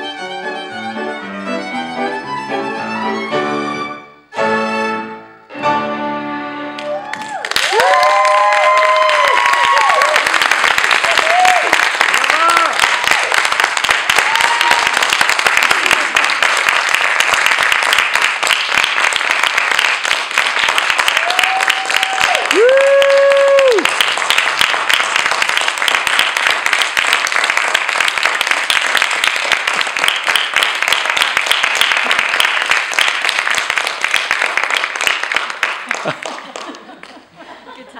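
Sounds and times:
audience applauding: 0:06.7 - 0:37.3
person cheering: 0:06.8 - 0:10.4, 0:11.0 - 0:13.5, 0:14.1 - 0:15.1, 0:21.2 - 0:23.9.

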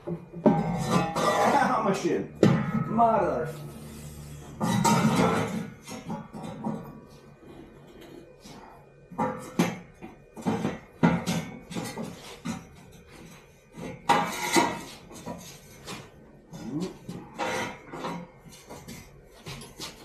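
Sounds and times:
metal tools clanking: 0:00.4 - 0:03.7.

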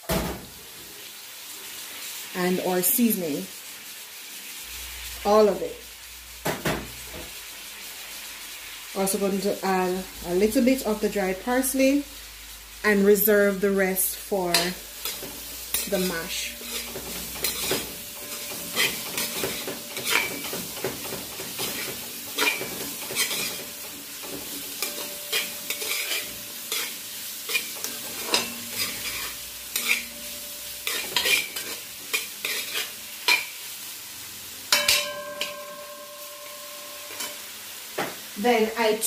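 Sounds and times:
vegetables sizzling: 0:00.0 - 0:39.0
metal spoon scraping a pot: 0:14.5 - 0:33.5, 0:37.1 - 0:37.4.

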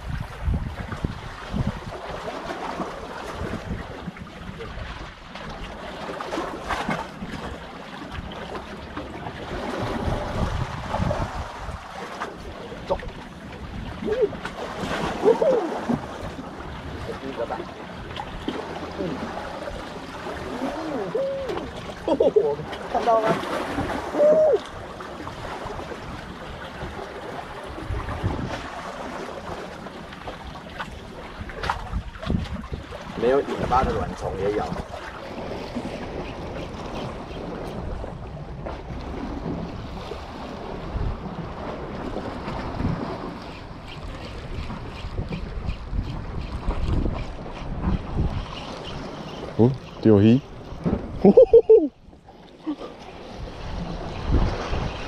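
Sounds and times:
wind gusting on microphone: 0:00.0 - 0:02.0, 0:09.5 - 0:11.9, 0:27.7 - 0:28.8, 0:31.4 - 0:52.0, 0:53.3 - 0:55.0
sea water washing: 0:00.0 - 0:55.0.

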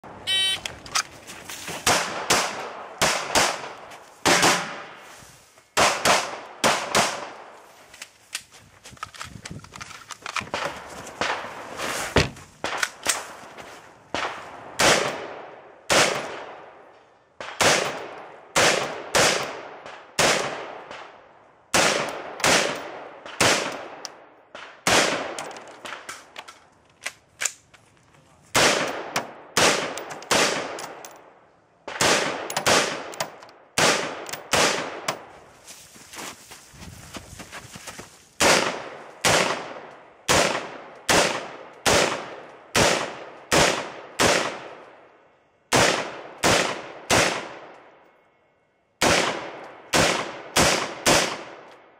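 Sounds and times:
rifle shots with echo: 0:01.8 - 0:05.0, 0:05.8 - 0:07.6, 0:14.1 - 0:26.1, 0:28.6 - 0:31.2, 0:31.8 - 0:35.3, 0:38.4 - 0:45.1, 0:45.7 - 0:48.0, 0:49.0 - 0:51.9.

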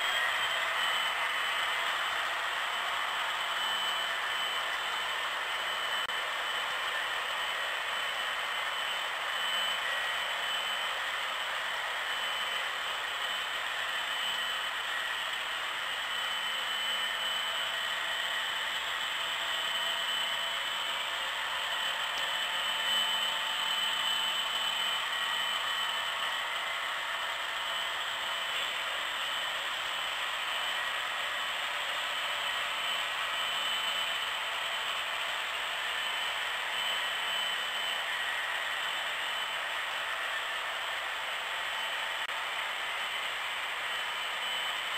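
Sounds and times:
faint high whir: 0:00.0 - 0:44.9.

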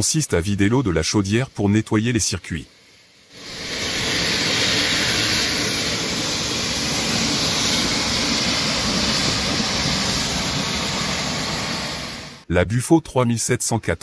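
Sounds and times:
steam blasting hiss: 0:00.0 - 0:12.5.

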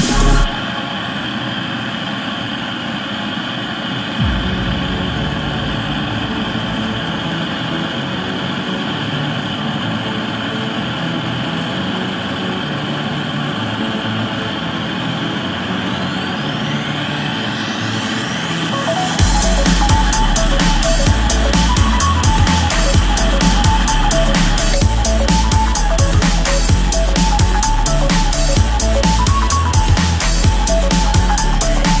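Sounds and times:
rising whistle-like tones: 0:04.0 - 0:10.3, 0:12.6 - 0:32.0
deep rumble: 0:04.2 - 0:09.7, 0:19.2 - 0:32.0.

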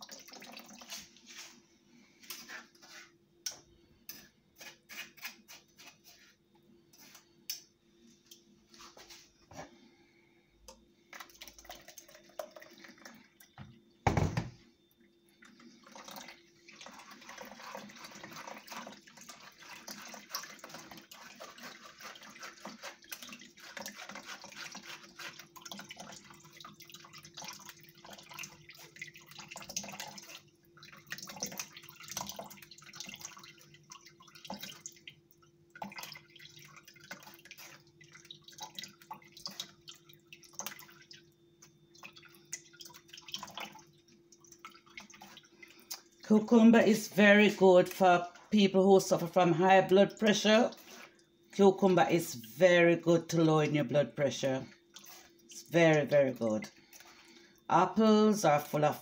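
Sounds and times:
juice trickling into bowl: 0:00.0 - 0:01.6, 0:10.7 - 0:14.0, 0:14.9 - 0:53.3.

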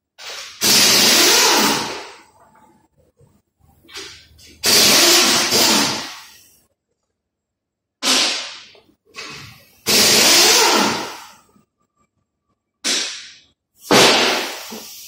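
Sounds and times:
compressed air blasts: 0:00.2 - 0:02.1, 0:03.9 - 0:06.5, 0:08.0 - 0:11.3, 0:12.8 - 0:15.0.

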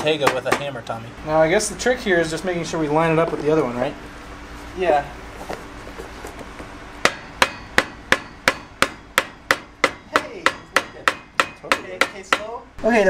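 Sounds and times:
hammer tapping metal: 0:07.0 - 0:12.6.

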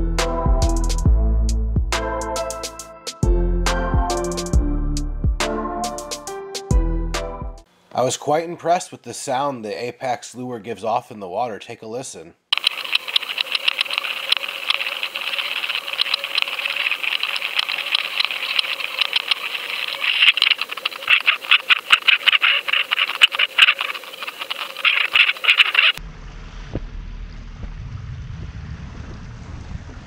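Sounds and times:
underwater hiss: 0:12.6 - 0:26.0
underwater lure clicking rattle: 0:12.6 - 0:26.0
boat noise: 0:12.6 - 0:30.0
low wind: 0:13.4 - 0:30.0.

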